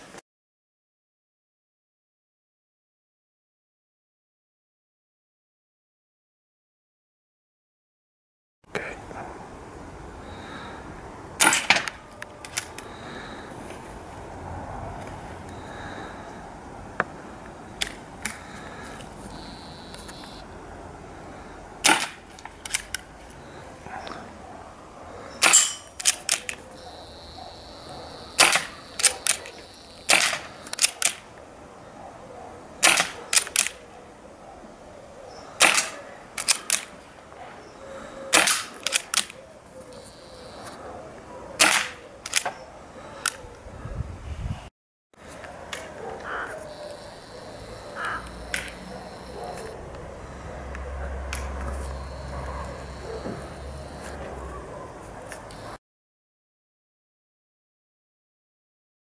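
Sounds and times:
air pistol shots cracking: 11.4s - 12.8s, 21.8s - 22.9s, 25.4s - 26.6s, 28.3s - 29.5s, 30.1s - 31.3s, 32.8s - 33.8s, 35.6s - 37.0s, 38.3s - 39.4s, 41.6s - 42.5s
pistol bolt clicks: 25.4s - 26.6s, 30.1s - 31.3s, 38.4s - 39.4s.

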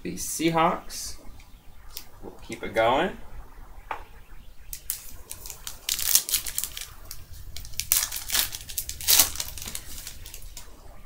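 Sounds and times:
foil wrapper crinkling and tearing: 4.8s - 10.6s.

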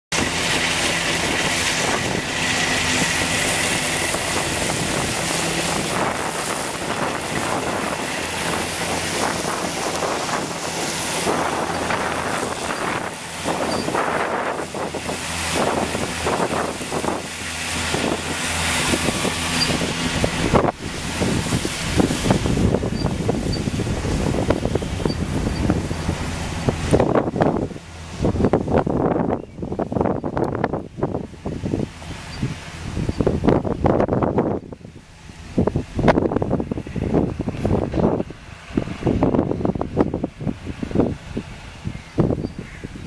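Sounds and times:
mowers cutting grass: 0.1s - 43.0s
tractor diesel engine running: 0.1s - 43.0s
wind buffeting microphone: 0.1s - 43.0s.

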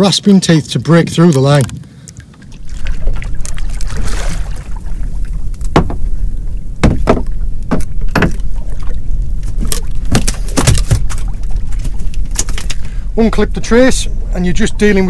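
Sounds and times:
wind rumble on microphone: 0.2s - 15.0s
water splashes and knocks: 1.3s - 6.2s, 6.8s - 12.8s.

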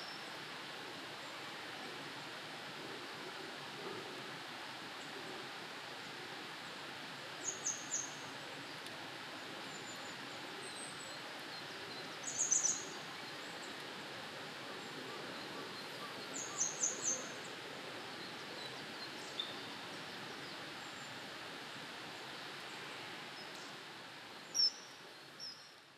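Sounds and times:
steady background hiss: 0.0s - 25.9s.

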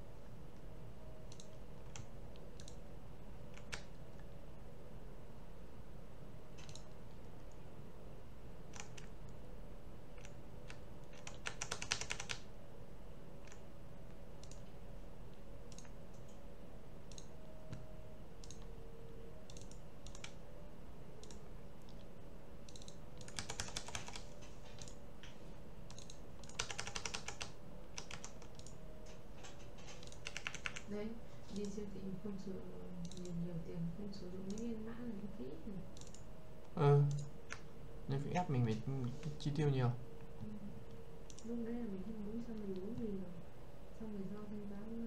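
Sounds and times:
faint steady hum: 0.0s - 45.0s
keyboard typing: 1.2s - 2.8s, 3.5s - 4.0s, 6.6s - 7.6s, 8.7s - 9.4s, 10.2s - 12.5s, 13.4s - 13.6s, 14.4s - 14.8s, 15.7s - 16.4s, 17.0s - 18.8s, 19.4s - 20.4s, 21.2s - 25.0s, 25.9s - 30.9s, 33.0s - 33.4s, 34.4s - 34.8s, 35.9s - 37.7s, 40.4s - 41.5s.

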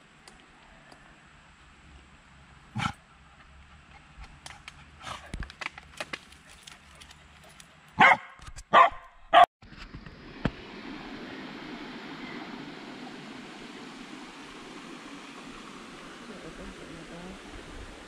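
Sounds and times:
light rustling and clicks: 4.2s - 8.7s
dog barking: 8.0s - 9.5s.

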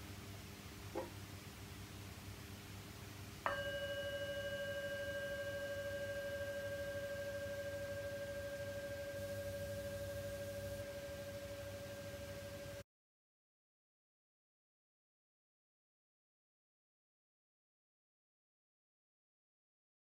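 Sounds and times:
meditation bell ringing: 3.5s - 12.8s.

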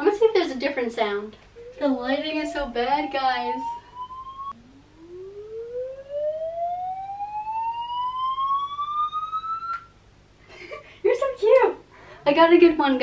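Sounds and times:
siren-like tone rising in pitch: 1.6s - 9.9s.

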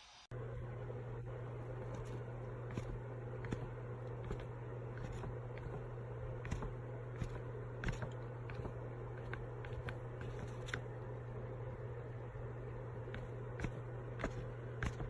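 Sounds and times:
steady low hum: 0.2s - 15.0s
paper clicks and scrapes: 1.8s - 10.9s, 13.0s - 15.0s.

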